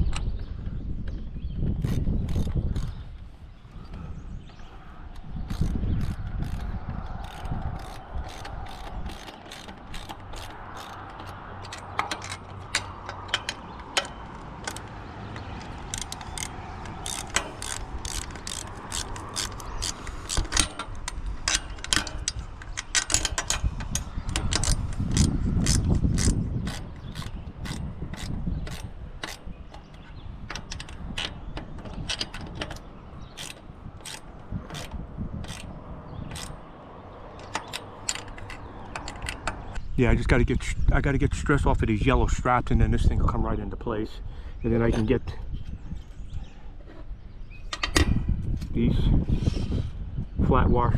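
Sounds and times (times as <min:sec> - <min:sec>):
wind rumble on microphone: 0:00.0 - 0:50.9
metal nuts and fittings clicking: 0:01.8 - 0:03.0, 0:05.1 - 0:39.9.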